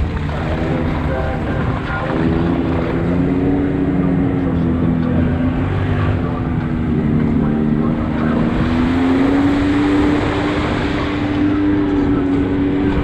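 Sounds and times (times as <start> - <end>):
engine running: 0.0 - 13.0
tyres through water: 0.0 - 13.0.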